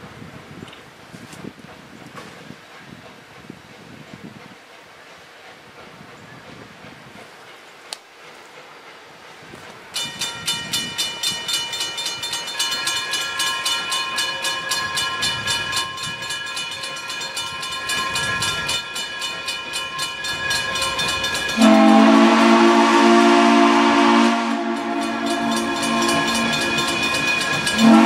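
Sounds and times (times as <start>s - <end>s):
crossing bell ringing rapidly: 9.9s - 28.0s
steam locomotive chime whistle: 10.0s - 28.0s.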